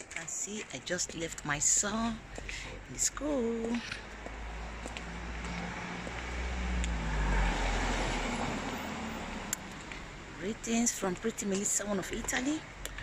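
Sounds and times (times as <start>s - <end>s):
vehicle driving past: 3.8s - 9.6s.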